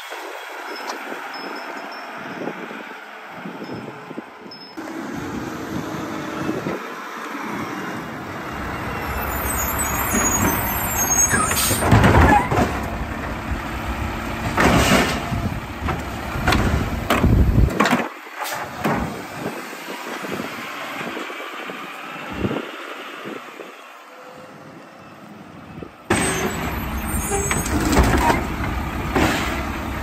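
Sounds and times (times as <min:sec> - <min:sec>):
garbage truck engine revving: 0:04.8 - 0:17.7, 0:26.1 - 0:30.0
loud clanks and bangs: 0:11.5 - 0:13.4, 0:14.4 - 0:19.2.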